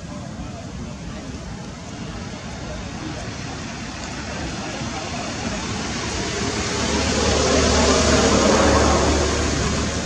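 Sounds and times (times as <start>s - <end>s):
vehicle passing by: 3.2s - 10.0s.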